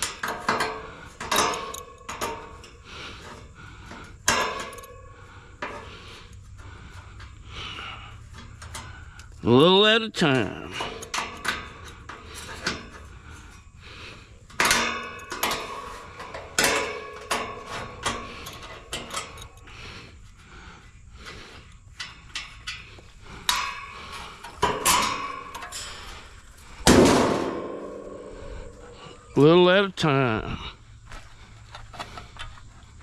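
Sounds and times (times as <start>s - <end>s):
metal clanks: 0.0s - 20.2s, 21.2s - 29.6s.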